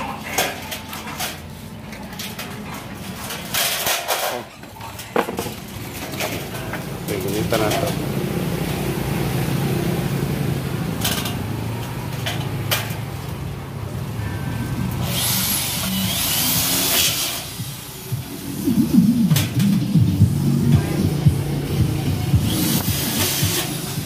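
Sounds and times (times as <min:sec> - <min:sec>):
power drill whining: 0:15.0 - 0:17.5
background music: 0:16.4 - 0:24.0.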